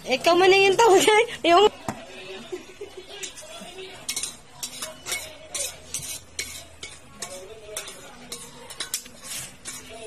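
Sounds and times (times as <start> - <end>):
fork clinking against glass bowl: 3.1 - 10.0.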